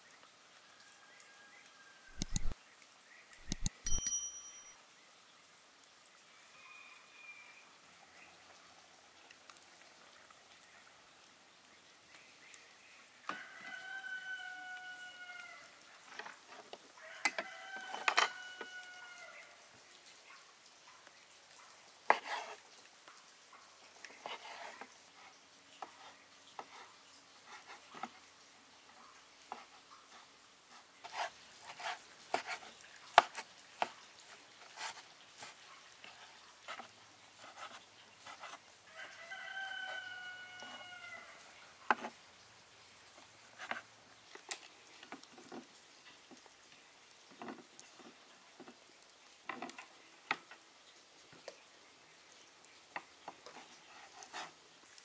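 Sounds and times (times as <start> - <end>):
rooster crowing: 0.6 - 2.5, 6.4 - 7.6, 13.2 - 15.8, 17.0 - 19.6, 38.9 - 41.5
sharp clicks and knocks: 2.1 - 2.6, 3.4 - 4.3.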